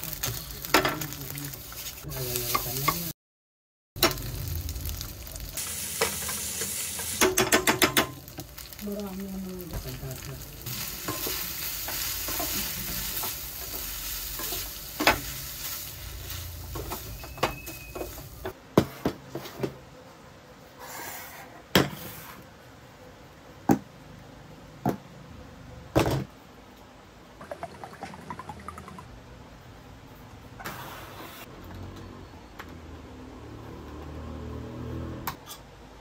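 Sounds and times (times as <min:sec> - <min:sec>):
rice sizzling in a frying pan: 0:00.0 - 0:03.1, 0:04.0 - 0:18.6.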